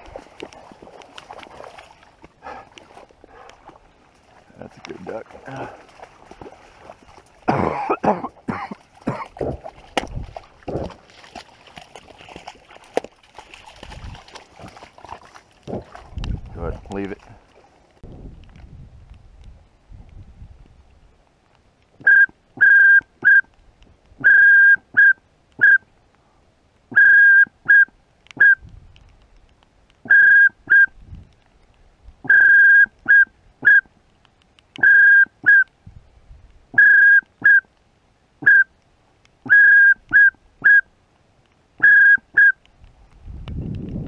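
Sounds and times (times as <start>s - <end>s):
duck whistle call: 36.8s - 37.7s, 39.5s - 40.9s, 41.8s - 42.6s.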